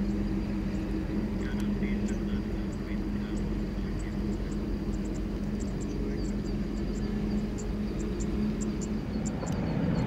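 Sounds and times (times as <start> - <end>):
distant jet engine rumble: 0.0 - 10.0.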